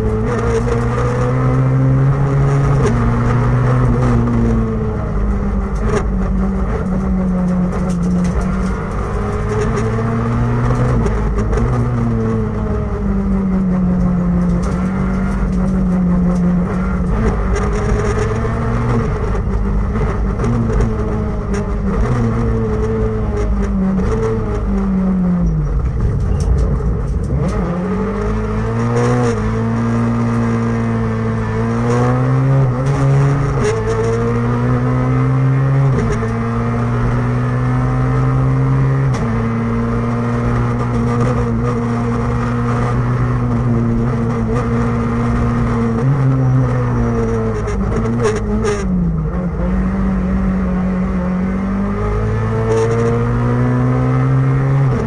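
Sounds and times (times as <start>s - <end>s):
car engine revving: 0.0s - 55.0s.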